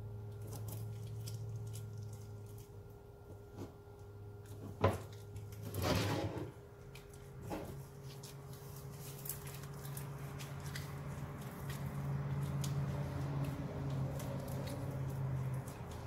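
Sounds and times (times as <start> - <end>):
knocks and scrapes: 4.5 - 6.6, 7.4 - 8.2.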